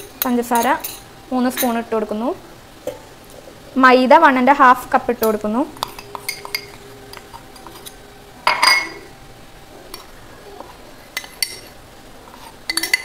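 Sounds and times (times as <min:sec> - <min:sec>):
cup clinking against metal jar: 0:05.8 - 0:09.0.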